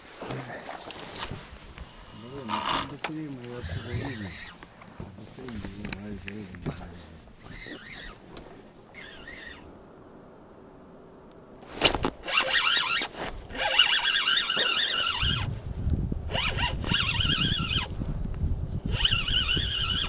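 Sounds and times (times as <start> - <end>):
spinning reel squealing: 3.6 - 4.6, 7.4 - 8.2, 8.9 - 9.7, 12.2 - 15.5, 16.3 - 17.9, 18.9 - 20.0.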